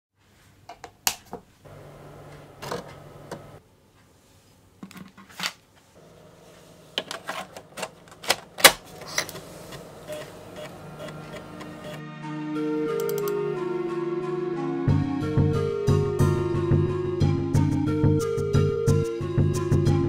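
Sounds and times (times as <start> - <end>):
floppy drive motor hum: 1.7 - 3.6, 7.7 - 12.0.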